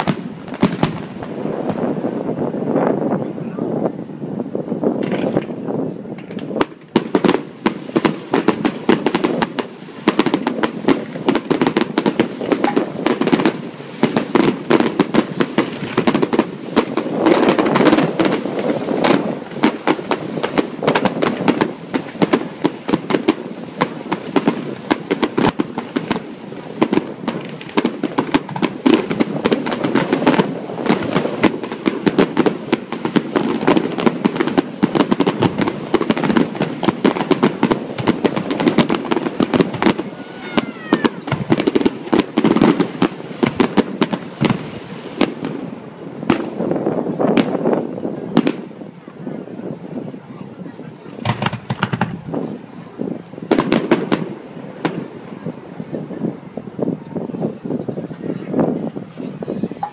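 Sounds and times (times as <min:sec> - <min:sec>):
fireworks bursts and crackling: 0:00.0 - 0:59.9.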